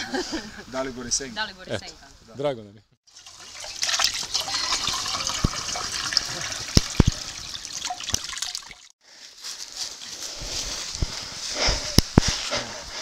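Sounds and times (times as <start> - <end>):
water pouring and splashing: 3.1 - 9.0.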